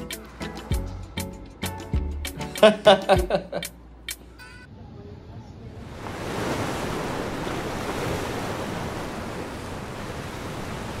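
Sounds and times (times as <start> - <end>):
wind: 4.6 - 11.0
ocean surf: 5.8 - 11.0.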